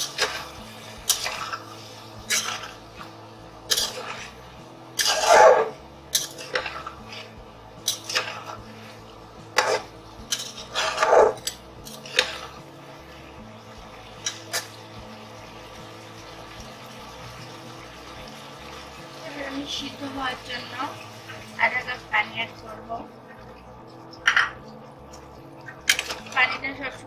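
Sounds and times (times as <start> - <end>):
metal spatula scraping a pot: 0.0 - 12.6, 14.2 - 14.8, 25.6 - 26.7.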